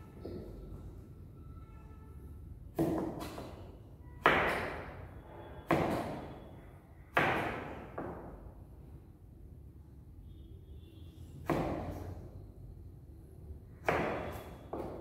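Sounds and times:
knife chopping on plastic board: 2.8s - 3.6s, 11.4s - 12.0s, 13.8s - 15.0s.

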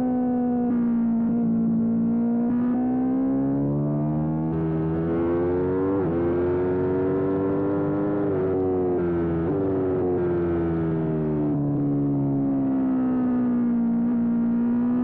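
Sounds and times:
motorcycle engine accelerating: 0.6s - 15.0s
engine downshifts: 0.8s - 15.0s.

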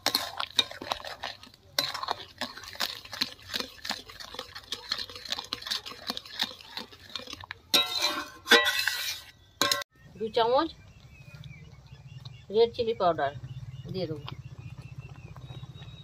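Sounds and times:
metal spatula scraping in wok: 0.0s - 2.9s, 7.0s - 9.8s.

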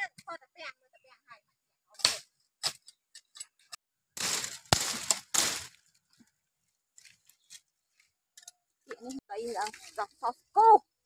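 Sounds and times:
dry bamboo snapping and crackling: 4.2s - 6.2s.

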